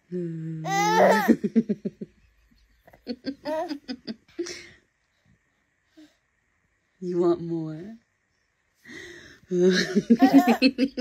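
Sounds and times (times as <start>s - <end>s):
baby laughing: 0.7s - 1.5s, 2.9s - 4.1s, 10.1s - 11.0s.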